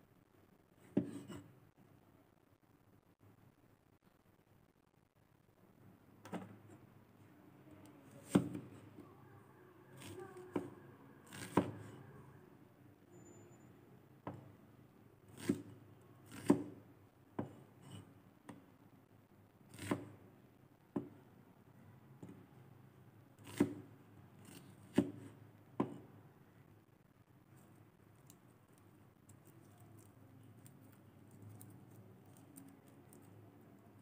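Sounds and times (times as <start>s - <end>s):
knife chopping on wooden board: 0.8s - 1.4s, 8.2s - 8.6s, 11.3s - 11.9s, 15.4s - 15.7s, 16.3s - 16.8s, 19.7s - 20.1s, 23.4s - 23.8s, 24.4s - 26.1s.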